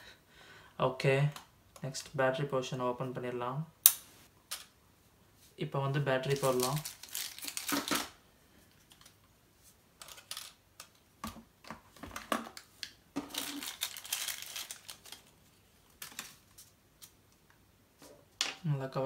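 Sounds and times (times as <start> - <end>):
plastic bag crinkling: 6.2 - 8.2, 13.2 - 16.8.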